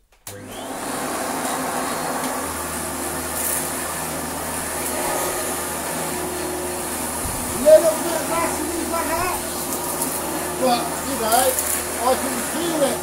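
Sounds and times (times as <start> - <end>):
vacuum cleaner running: 0.2 - 13.0
deeper hum: 4.6 - 11.3.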